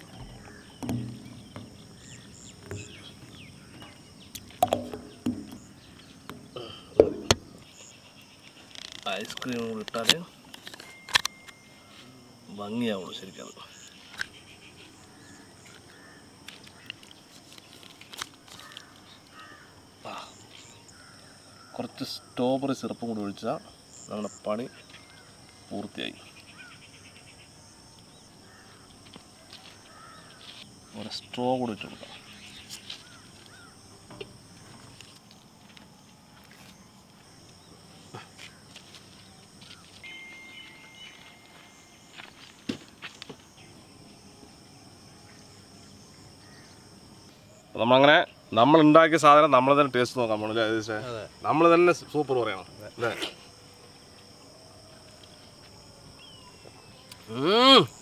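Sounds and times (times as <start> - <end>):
bird chirps: 0.0 - 9.8, 39.2 - 43.8
insect trilling: 0.0 - 58.0
soft knocks: 0.1 - 3.0, 4.6 - 7.5
thin whistle-like tone: 40.0 - 42.2.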